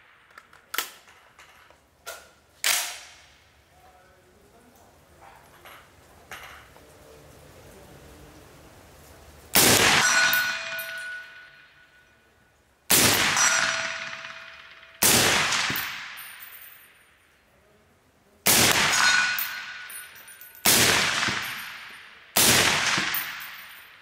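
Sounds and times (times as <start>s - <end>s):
ringing echo: 9.6s - 12.4s, 13.0s - 17.2s, 18.6s - 24.0s
suppressed rifle shots: 12.9s - 16.4s, 18.5s - 19.9s, 20.6s - 23.7s.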